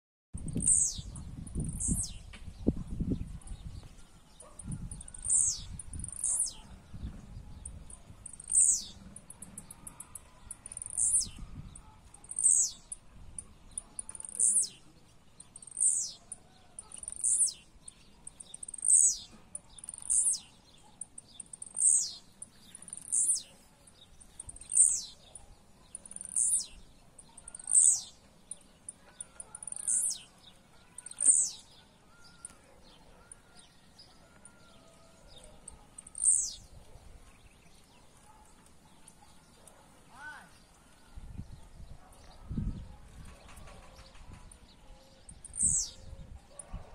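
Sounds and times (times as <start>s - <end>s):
birds singing downward-sweeping notes: 0.4s - 9.0s, 10.4s - 28.9s, 35.4s - 36.8s, 45.3s - 46.2s.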